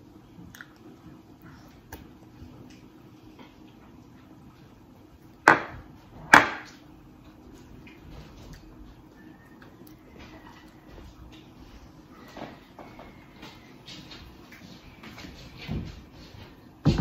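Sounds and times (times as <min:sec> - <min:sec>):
sharp knocks on hard surface: 0:05.5 - 0:06.6.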